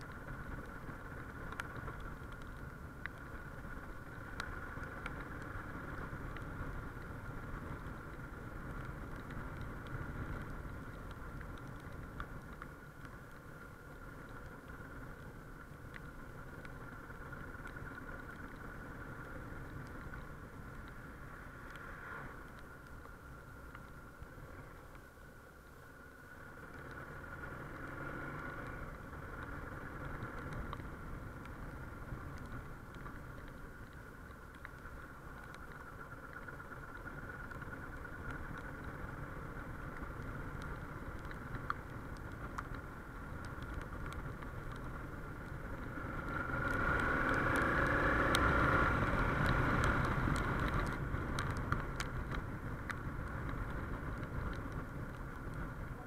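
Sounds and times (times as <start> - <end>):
motorcycle engine accelerating: 26.7 - 31.0, 45.3 - 54.2.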